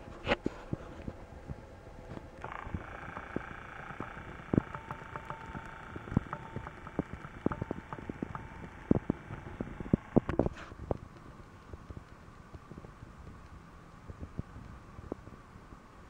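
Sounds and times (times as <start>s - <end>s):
faint steady tone: 0.0s - 16.0s
sharp clicks and knocks: 2.2s - 12.2s.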